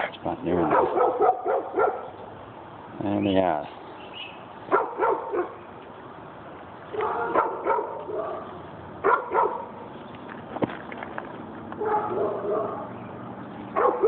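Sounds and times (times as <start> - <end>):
dog barking: 0.6 - 2.2, 4.7 - 5.6, 6.9 - 9.7, 11.8 - 13.0, 13.8 - 14.0.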